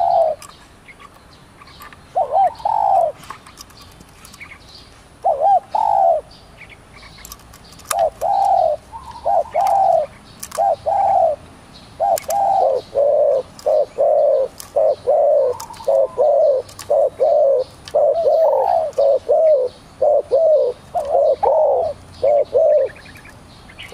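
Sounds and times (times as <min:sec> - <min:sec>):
dove cooing: 0:00.0 - 0:00.6, 0:02.1 - 0:03.4, 0:05.2 - 0:06.4, 0:07.2 - 0:11.4, 0:12.0 - 0:23.9.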